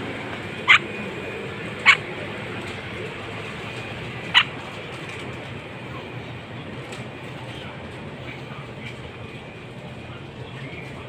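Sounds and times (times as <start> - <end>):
steady background hum: 0.0 - 11.0
parakeet chirp: 0.6 - 1.0, 1.8 - 2.1, 4.2 - 4.6.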